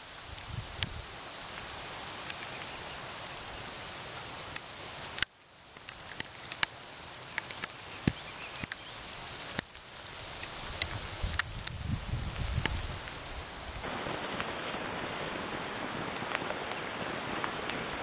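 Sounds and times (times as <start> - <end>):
rain hiss: 0.0 - 18.0
raindrops ticking close by: 0.0 - 18.0.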